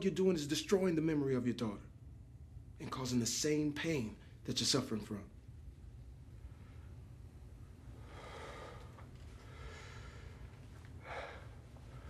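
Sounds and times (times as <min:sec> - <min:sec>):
low steady hum: 0:00.0 - 0:12.0
man breathing heavily: 0:08.0 - 0:12.0.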